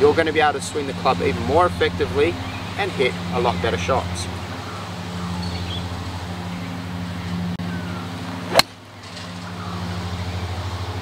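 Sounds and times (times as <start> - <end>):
low mechanical hum: 0.0 - 11.0
golf club striking ball: 8.5 - 8.8.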